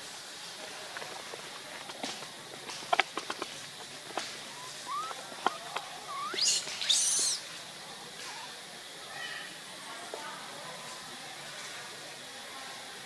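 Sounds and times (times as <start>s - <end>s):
baby monkey squeaking: 4.5s - 7.4s.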